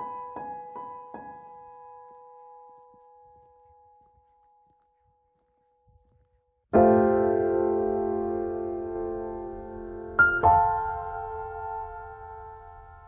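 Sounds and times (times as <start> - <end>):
solo piano: 0.0 - 4.1, 6.7 - 13.0.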